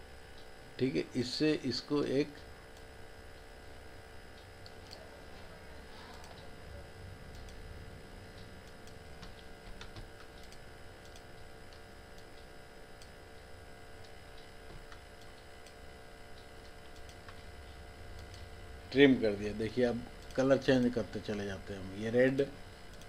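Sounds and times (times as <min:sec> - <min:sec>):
steady electrical hum: 0:00.0 - 0:23.0
computer mouse clicks: 0:06.0 - 0:06.5, 0:07.3 - 0:07.6, 0:08.3 - 0:17.5, 0:18.2 - 0:18.5.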